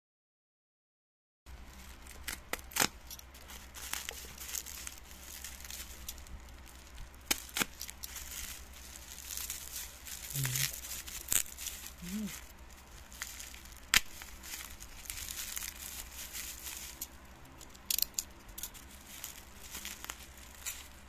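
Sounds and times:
bubble wrap crinkling: 0:01.5 - 0:21.0
steady low hum: 0:01.5 - 0:21.0
cutter slitting packaging: 0:02.1 - 0:12.5.

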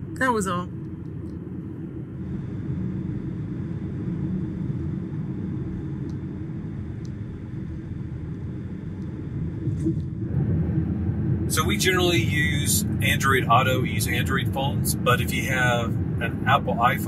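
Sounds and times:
road and tyre rumble: 0:09.4 - 0:17.0.

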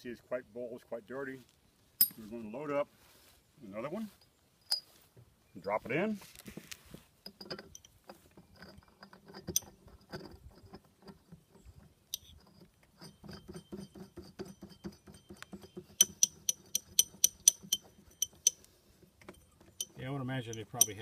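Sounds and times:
ringing metallic clicks: 0:14.8 - 0:18.7, 0:19.3 - 0:21.0.

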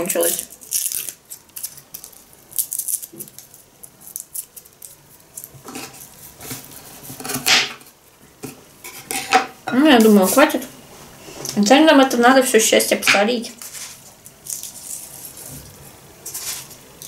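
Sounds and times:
garlic skin rustling and crackling: 0:00.0 - 0:08.1, 0:13.6 - 0:17.0.

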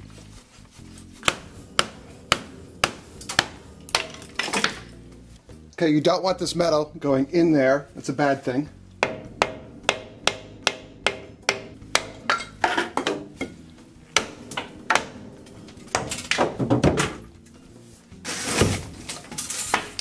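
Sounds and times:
metal pipe clattering: 0:01.0 - 0:05.2, 0:08.8 - 0:20.0
hammer striking iron pipe: 0:01.2 - 0:05.1, 0:09.0 - 0:17.3.

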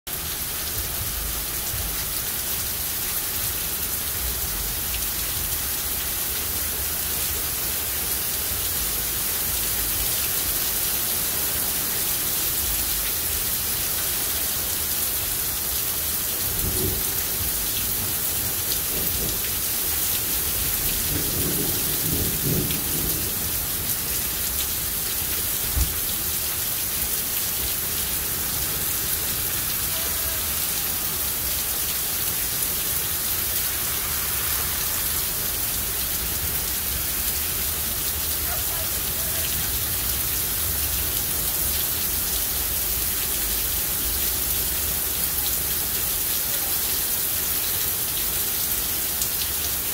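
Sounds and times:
heavy rain pouring: 0:00.1 - 0:49.9
low rumbles of thunder: 0:16.5 - 0:18.2, 0:18.8 - 0:19.9, 0:20.5 - 0:24.9.

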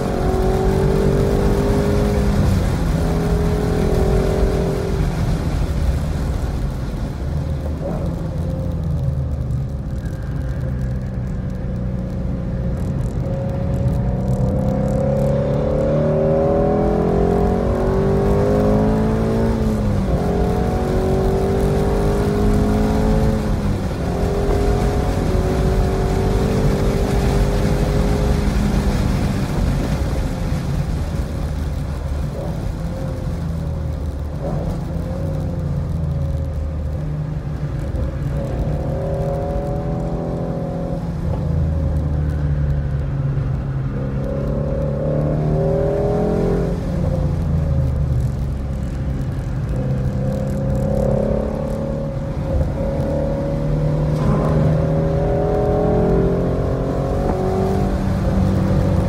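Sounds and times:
car engine revving: 0:00.0 - 0:59.0
tyre and wind noise: 0:00.0 - 0:59.0.

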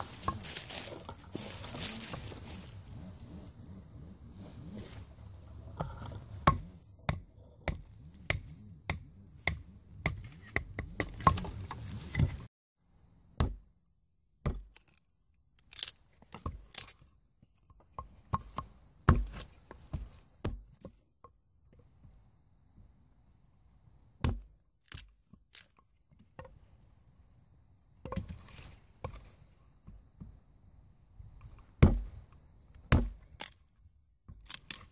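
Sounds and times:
stick being split: 0:00.0 - 0:03.1, 0:14.6 - 0:17.1, 0:24.8 - 0:25.8, 0:33.2 - 0:33.7, 0:34.4 - 0:34.9
hatchet chopping wood: 0:05.8 - 0:12.4, 0:13.4 - 0:13.7, 0:14.4 - 0:15.0, 0:15.7 - 0:17.0, 0:18.0 - 0:20.9, 0:24.2 - 0:25.1, 0:31.8 - 0:32.2, 0:32.9 - 0:33.6, 0:34.3 - 0:34.9.

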